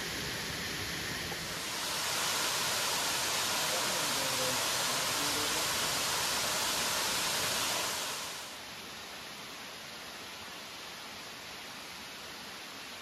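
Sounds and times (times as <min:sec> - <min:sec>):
waterfall rushing: 0:00.0 - 0:08.7.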